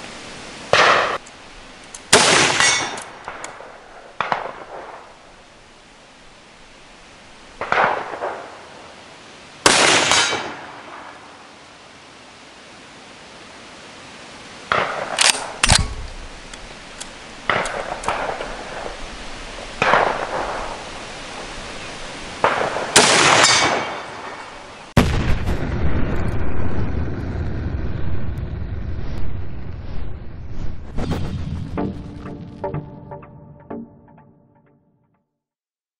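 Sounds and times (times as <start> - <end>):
rifle shots: 2.1 - 5.1, 7.6 - 8.5, 9.6 - 11.2, 14.7 - 16.3, 17.5 - 19.0, 19.8 - 20.8, 22.4 - 24.5
rifle bolt action clicks: 15.2 - 18.2
music: 31.2 - 35.4.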